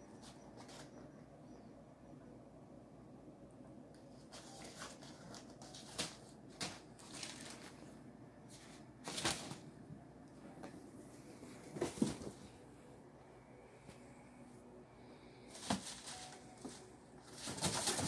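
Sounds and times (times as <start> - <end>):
kittens scampering and tussling: 0.1 - 1.2, 15.5 - 18.0.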